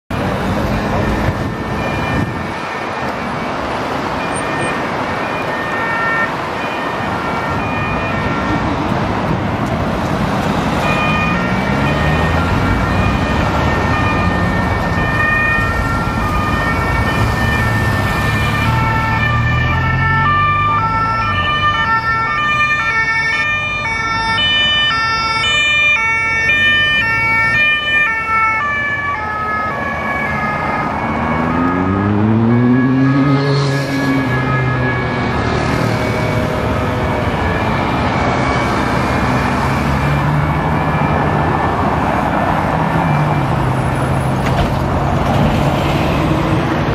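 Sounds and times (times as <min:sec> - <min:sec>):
engines revving: 0:00.1 - 0:24.0, 0:24.6 - 0:46.9
traffic noise: 0:00.1 - 0:46.9
two-tone police sirens: 0:00.1 - 0:46.9.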